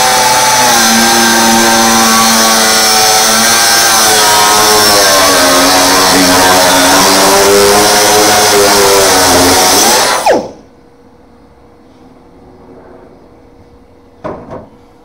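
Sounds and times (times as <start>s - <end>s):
angle grinder grinding metal: 0.0s - 10.6s.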